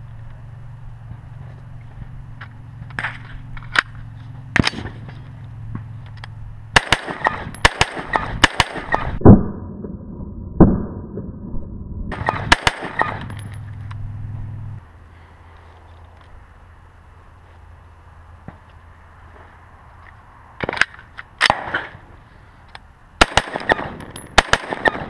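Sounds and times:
rifle shots: 6.8s - 9.5s, 12.1s - 13.4s, 23.2s - 25.0s.

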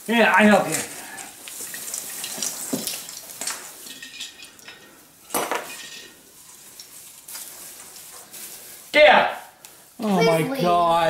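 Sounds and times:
plastic branches rustling: 0.0s - 11.0s
ornaments clinking: 1.6s - 8.3s.

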